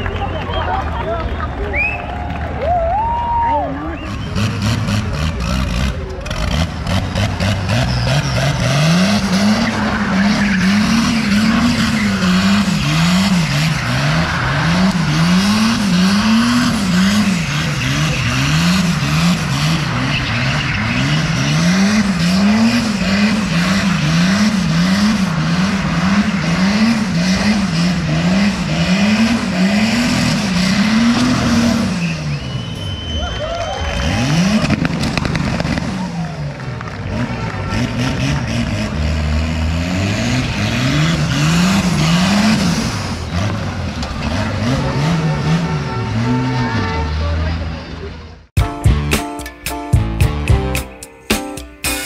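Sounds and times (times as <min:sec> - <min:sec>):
tyres squealing on pavement: 0:03.0 - 0:38.6
car engine revving: 0:03.8 - 0:48.5.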